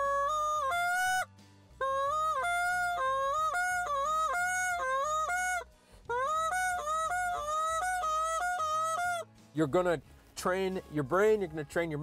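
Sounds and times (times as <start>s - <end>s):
reed goose call breaking pitch: 0.0s - 9.3s.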